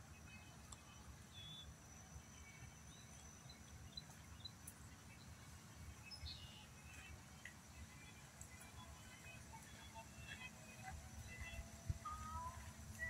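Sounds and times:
bird chirps: 0:01.3 - 0:01.8, 0:06.0 - 0:07.0
low wind rumble: 0:09.0 - 0:13.0.

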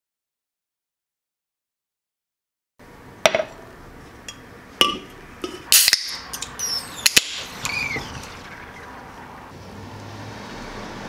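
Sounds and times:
can and glass clinking on stone: 0:04.3 - 0:07.4
can tab hissing open: 0:04.8 - 0:08.0.

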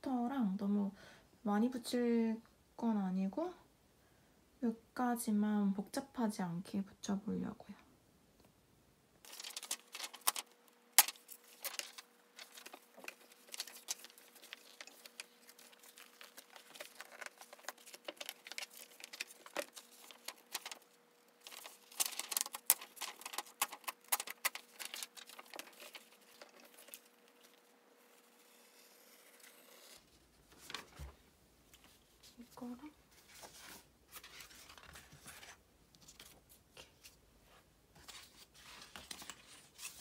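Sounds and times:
faint steady hum: 0:00.0 - 0:40.0
paper and plastic rustling: 0:09.2 - 0:27.7, 0:30.5 - 0:40.0.

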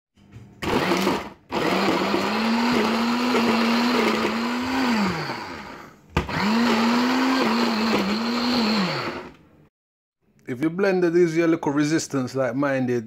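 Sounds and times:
blender chopping bread: 0:00.6 - 0:09.4.

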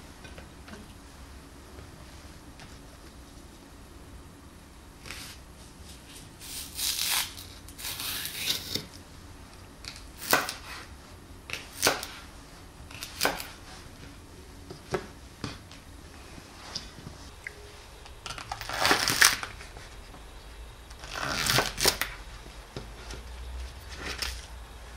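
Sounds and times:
knife slicing green onion: 0:10.2 - 0:10.9, 0:11.5 - 0:12.2.

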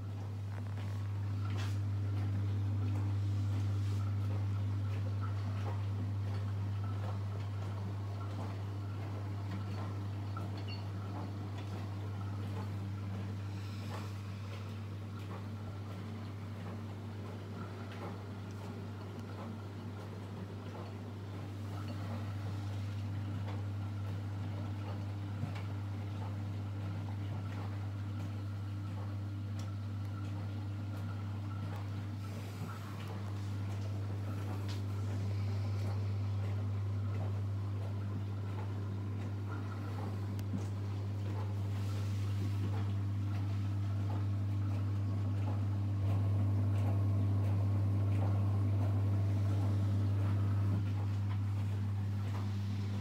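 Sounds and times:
electric pump hum: 0:00.0 - 0:53.0.

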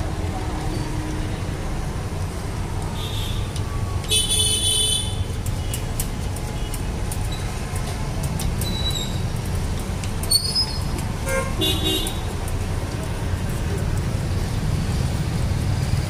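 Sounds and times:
street traffic rumble: 0:00.0 - 0:16.0
vehicle horn: 0:11.2 - 0:12.2.

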